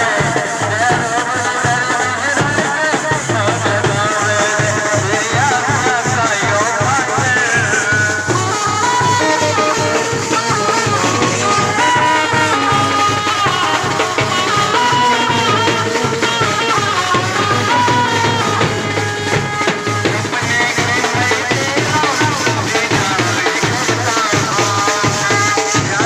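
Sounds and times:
marching bass drums: 0.0s - 26.0s
high wavering melody: 7.3s - 19.8s.

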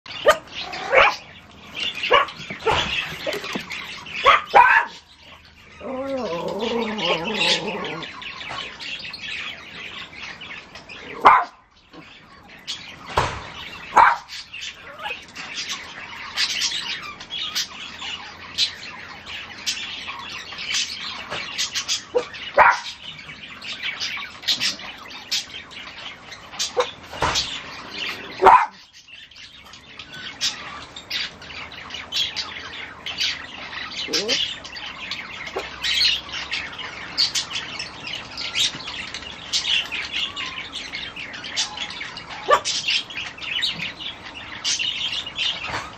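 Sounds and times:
birds chirping: 0.0s - 45.9s
small dogs yapping: 0.1s - 1.3s, 1.9s - 5.1s, 5.7s - 8.2s, 11.1s - 11.6s, 13.9s - 15.2s, 22.1s - 23.0s, 28.0s - 28.9s, 34.0s - 34.5s, 42.3s - 42.9s.

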